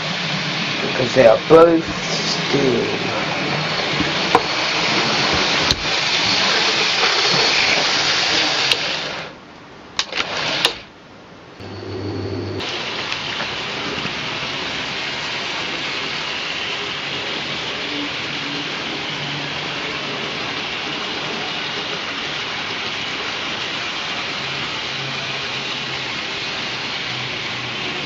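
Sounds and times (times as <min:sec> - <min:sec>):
model train motors whirring: 0:00.0 - 0:09.3, 0:12.6 - 0:28.0
short hum: 0:11.6 - 0:12.6.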